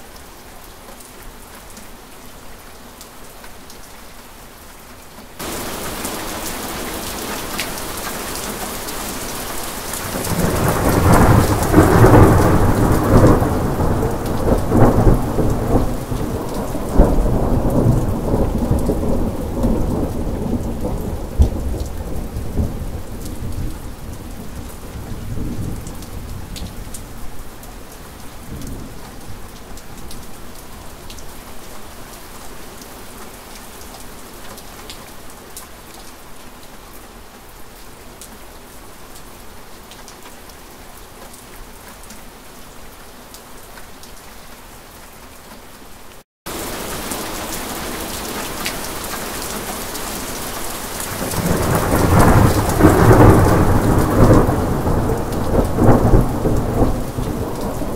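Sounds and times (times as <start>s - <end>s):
steady rain hiss: 0.0s - 57.9s
thunder rolling and cracking: 5.4s - 8.2s, 10.0s - 23.7s, 51.2s - 57.9s.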